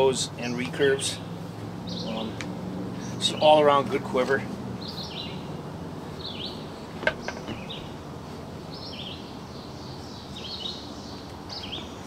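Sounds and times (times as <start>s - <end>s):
outdoor background noise: 0.0s - 12.0s
songbird chirping: 0.0s - 12.0s
bow knocking when handled: 7.0s - 7.7s.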